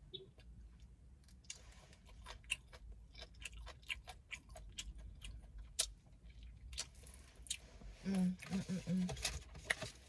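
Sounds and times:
wet chewing clicks and smacks: 0.4 - 7.6.

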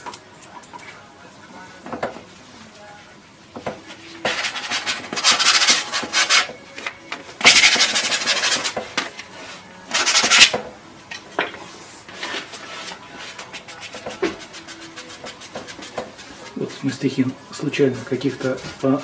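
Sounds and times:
painting tool scraping canvas: 4.2 - 6.6, 7.4 - 10.6, 12.1 - 16.8.

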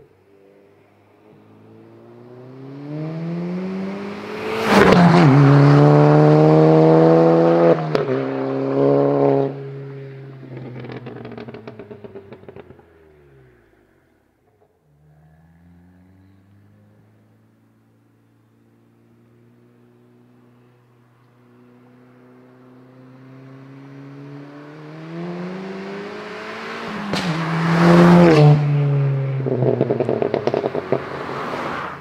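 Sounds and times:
car accelerating past: 1.3 - 13.9, 14.8 - 18.1, 21.4 - 32.0
exhaust crack: 10.4 - 14.8, 26.9 - 31.5
exhaust pops and crackles: 10.5 - 12.9, 29.7 - 31.1.

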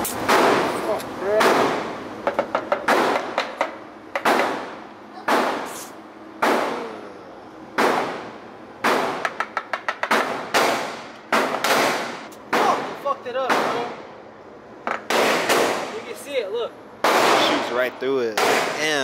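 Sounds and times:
loud gunshots echoing indoors: 10.1 - 12.9, 17.0 - 17.7.

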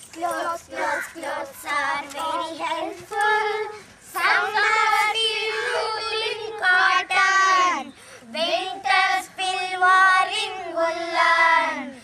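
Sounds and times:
children singing: 0.2 - 7.9.

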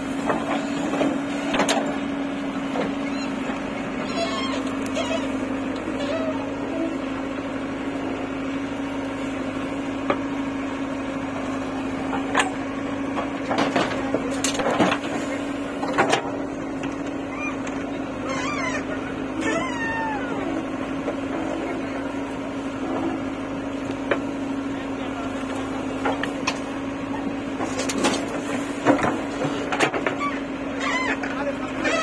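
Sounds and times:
diesel engine running: 0.0 - 32.0
high wavering squeals: 18.2 - 20.5.

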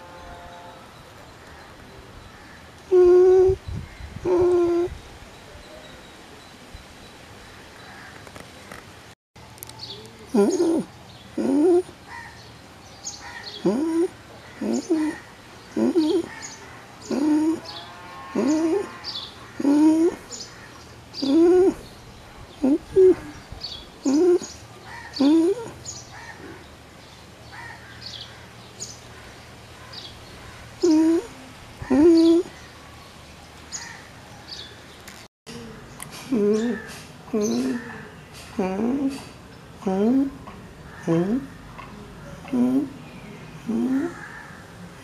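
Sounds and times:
pigeon cooing: 2.9 - 3.6, 4.2 - 4.9, 10.3 - 12.3, 13.2 - 17.7, 18.3 - 20.4, 21.2 - 21.9, 22.6 - 26.6, 30.8 - 32.6, 35.5 - 43.0, 43.6 - 44.3.

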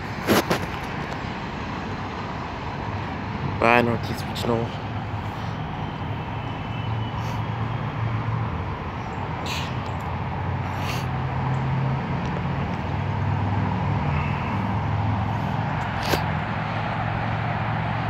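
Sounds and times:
low rumble of vehicles: 0.0 - 18.0
short hisses: 7.1 - 7.5, 9.4 - 9.8, 10.7 - 11.2.

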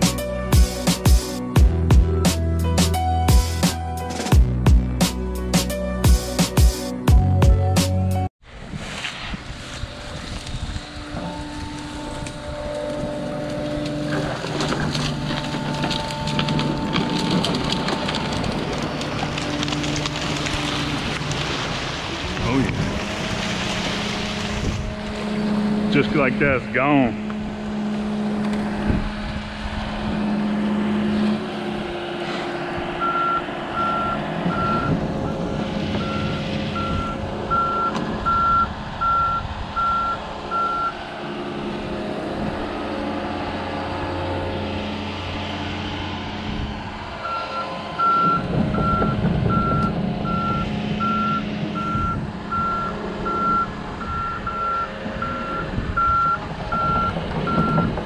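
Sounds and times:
diesel engine running: 0.0 - 58.0
travel alarm beeping: 33.0 - 35.0, 36.0 - 40.9, 47.2 - 57.9.

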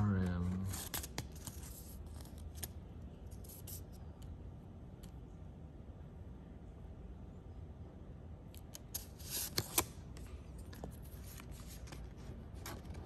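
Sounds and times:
faint low hum: 0.0 - 13.0
plastic cards rustling and clicking: 8.6 - 13.0.

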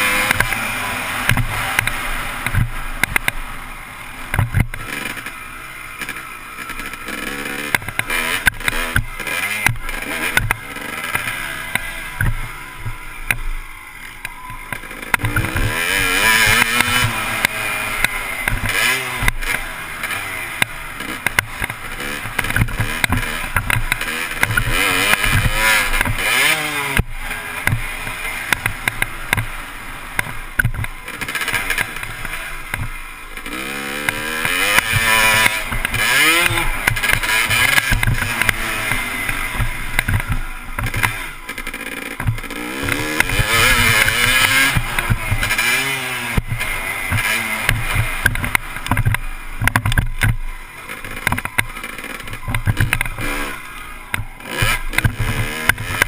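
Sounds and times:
dirt bike engine revving: 0.0 - 56.0
knocks from riding: 34.4 - 50.4, 51.1 - 53.3.

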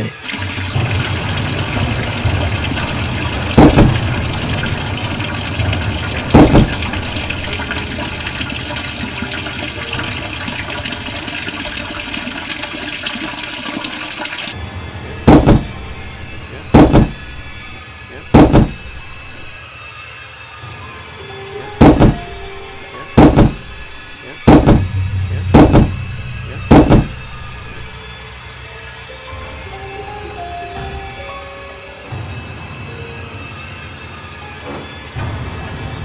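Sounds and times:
tap water running into sink: 0.2 - 14.6
heavy thuds on a door: 3.5 - 4.3, 6.3 - 7.0, 15.3 - 15.8, 16.7 - 17.3, 18.3 - 19.0, 21.8 - 22.4, 23.2 - 23.8, 24.4 - 27.2.

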